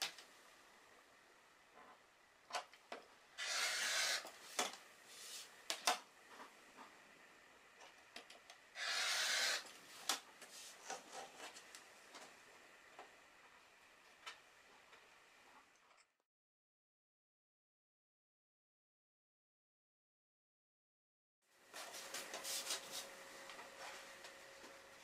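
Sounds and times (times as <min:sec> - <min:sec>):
rotary cutter slicing fabric: 0:03.4 - 0:04.4, 0:08.8 - 0:10.2.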